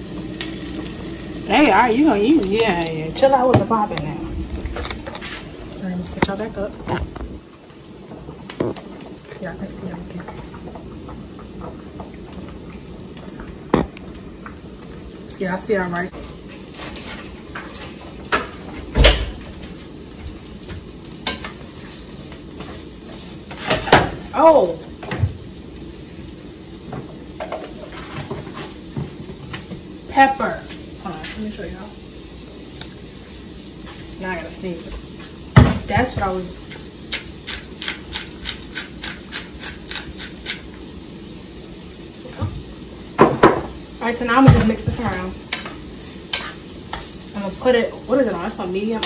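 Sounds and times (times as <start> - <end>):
vegetables sizzling in a frying pan: 0.0 - 49.0
pepper grinder ratcheting clicks: 37.1 - 40.7.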